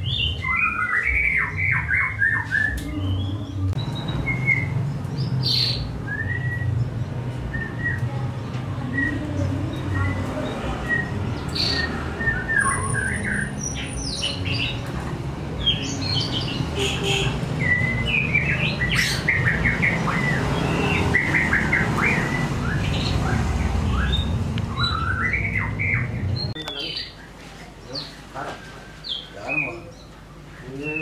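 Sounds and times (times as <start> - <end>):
songbird whistling and chirping: 0.0 - 6.8, 7.5 - 8.1, 9.9 - 14.7, 17.6 - 23.1, 23.9 - 27.1.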